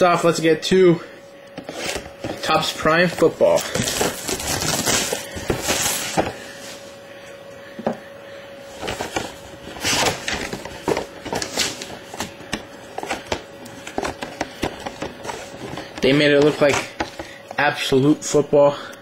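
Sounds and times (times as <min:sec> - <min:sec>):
cardboard box being handled: 0:03.1 - 0:06.4
shrink wrap tearing and crinkling: 0:03.6 - 0:06.2.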